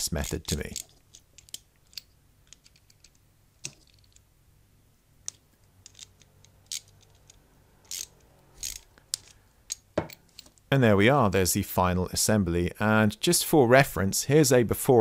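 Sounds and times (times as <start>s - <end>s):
ratchet wrench clicking: 5.9s - 9.8s.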